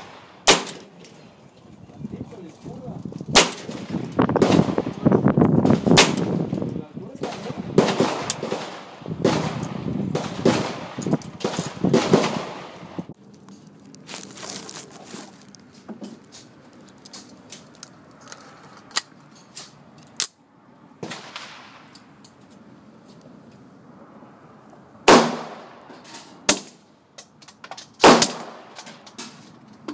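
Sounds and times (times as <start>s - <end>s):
loud gunshots with echo: 7.2s - 12.8s, 25.1s - 25.8s.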